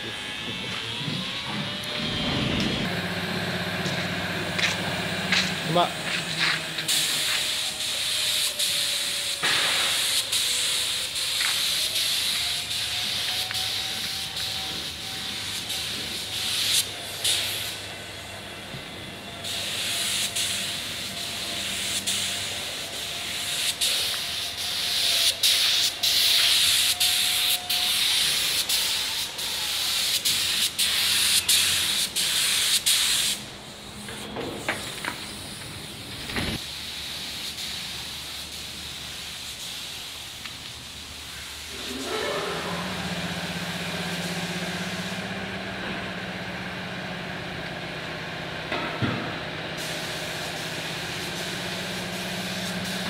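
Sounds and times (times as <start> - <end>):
paint spray gun hissing: 4.6 - 18.0, 19.4 - 41.9, 43.0 - 45.4, 49.8 - 53.0.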